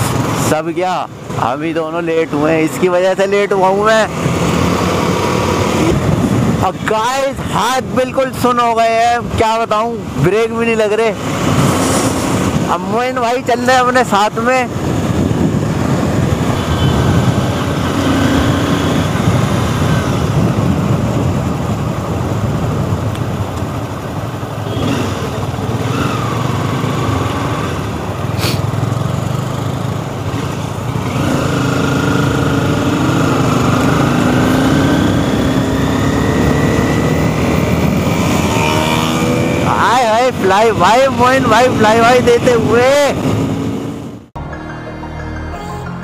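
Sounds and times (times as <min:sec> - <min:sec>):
wind rush on microphone: 0:04.2 - 0:07.0, 0:11.2 - 0:13.2, 0:14.5 - 0:24.3.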